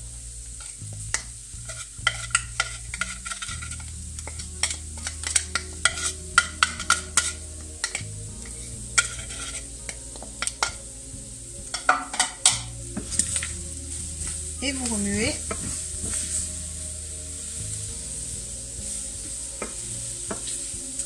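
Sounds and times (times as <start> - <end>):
shrimp sizzling in a frying pan: 0.0 - 21.0
spoon scraping and tapping container: 0.6 - 9.6, 11.7 - 13.5.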